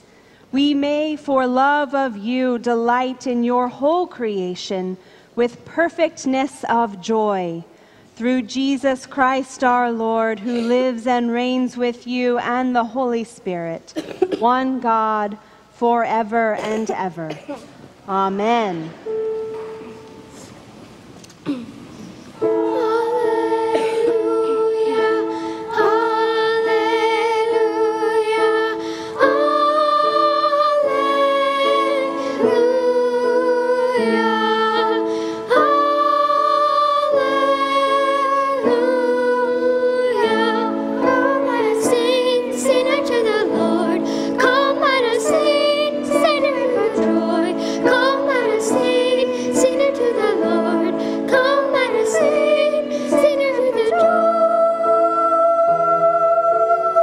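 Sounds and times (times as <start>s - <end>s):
children's choir singing chords: 22.4s - 57.0s.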